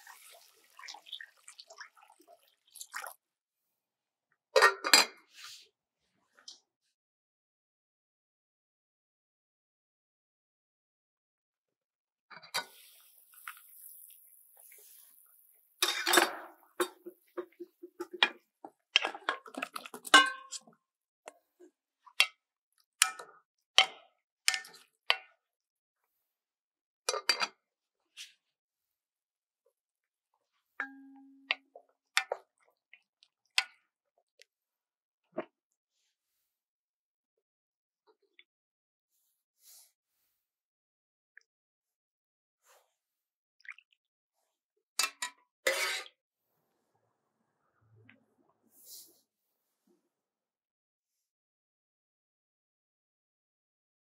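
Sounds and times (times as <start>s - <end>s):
water dripping into a pot: 0.0s - 3.2s, 12.9s - 17.6s.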